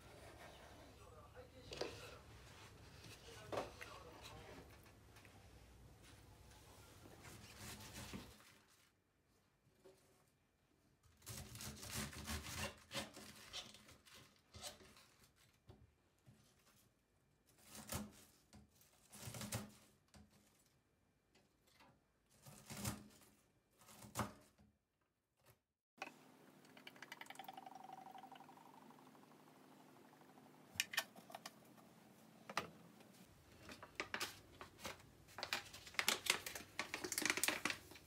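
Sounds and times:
knife shredding cabbage on board: 11.2 - 13.7
liquid pouring into glass bottle: 26.6 - 29.0.

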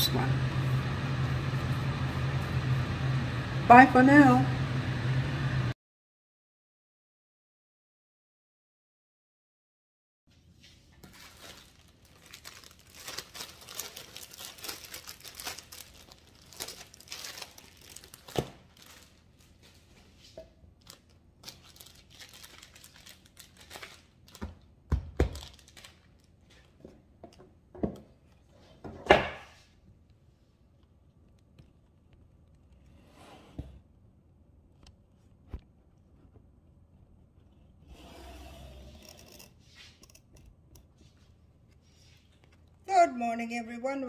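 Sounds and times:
rustling handling noise: 10.3 - 24.6.

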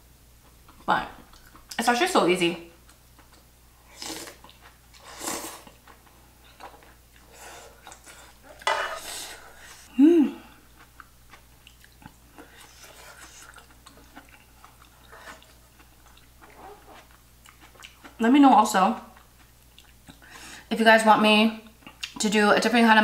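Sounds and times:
soft chewing: 0.4 - 1.8, 2.8 - 18.3, 18.9 - 20.4
person slurping stew: 3.9 - 5.8
person humming mm: 9.9 - 10.6.

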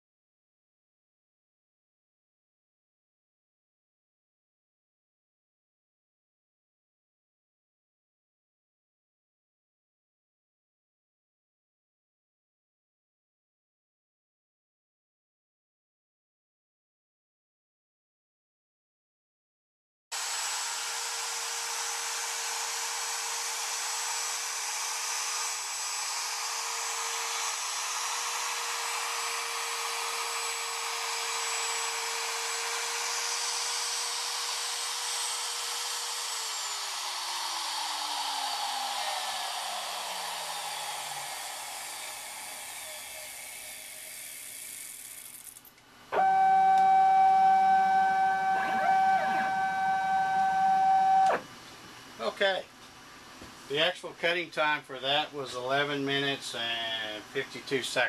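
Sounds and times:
router spindle whining: 20.2 - 45.4, 46.2 - 51.6
stepper motors whining: 20.2 - 45.4, 46.2 - 51.5.

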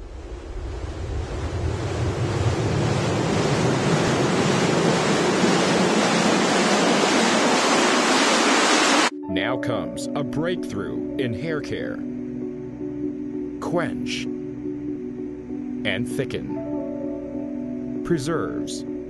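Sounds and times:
loud rushing noise: 0.0 - 9.1.

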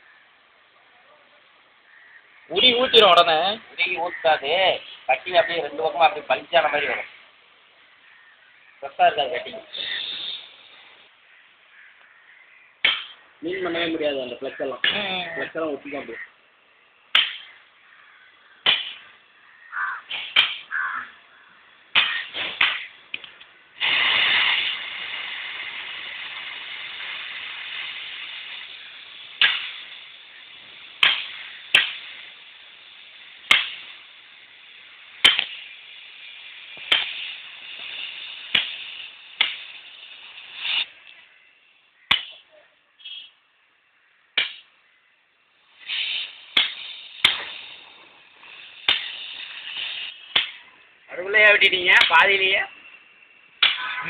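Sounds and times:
sharp pops: 8.9 - 16.3, 17.0 - 43.4, 44.3 - 44.9, 45.6 - 54.0
gas torch flame hissing: 9.5 - 11.1, 21.9 - 41.4, 45.6 - 52.5.

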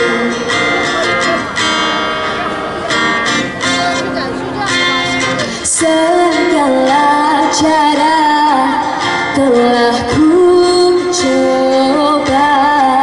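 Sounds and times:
acoustic guitar: 0.0 - 13.0
woman singing into microphone: 5.5 - 13.0.

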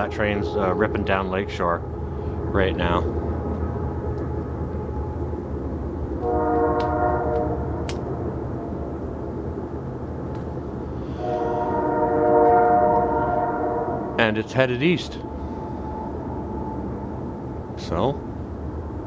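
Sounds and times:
distant train air horn: 0.0 - 5.2, 6.2 - 8.8, 11.0 - 17.6
low rumble: 0.0 - 19.0.

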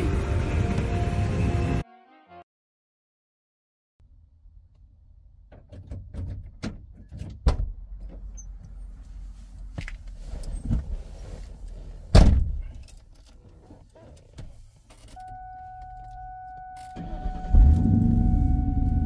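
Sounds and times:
low steady rumble: 17.0 - 19.0.

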